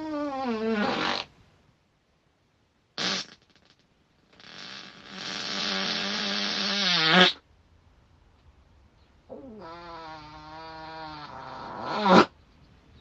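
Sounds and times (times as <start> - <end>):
person farting: 0.0 - 1.3, 3.0 - 7.4, 9.6 - 12.3.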